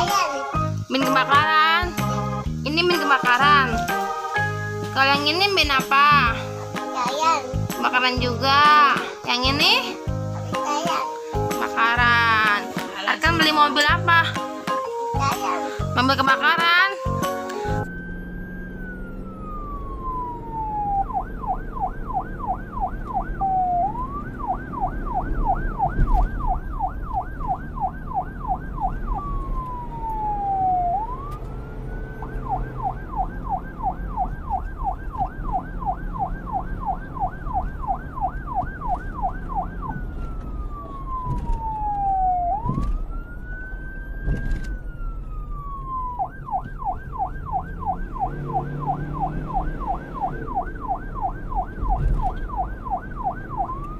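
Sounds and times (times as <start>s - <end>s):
fire truck siren wailing and yelping: 13.2s - 53.9s.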